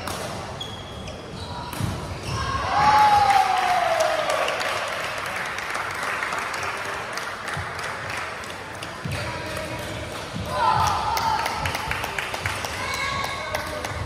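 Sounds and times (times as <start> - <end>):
spectators clapping: 3.2 - 14.0.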